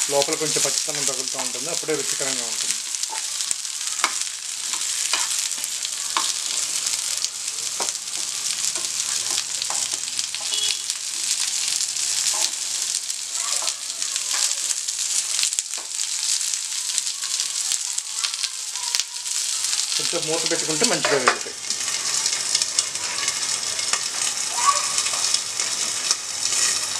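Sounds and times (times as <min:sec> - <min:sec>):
onions sizzling in hot oil: 0:00.0 - 0:26.9
spatula clicking against a pan: 0:04.0 - 0:05.4.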